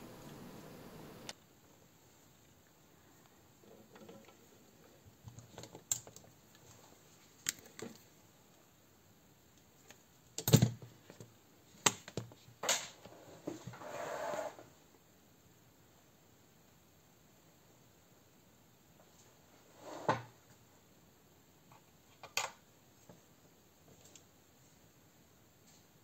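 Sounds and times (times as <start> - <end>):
plastic parts clicking and knocking: 5.2 - 6.4
rustling scrape: 13.1 - 14.7, 19.5 - 20.3.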